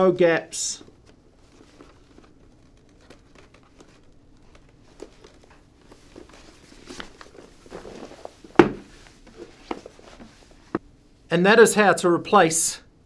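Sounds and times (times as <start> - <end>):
fabric rustling: 0.9 - 10.8.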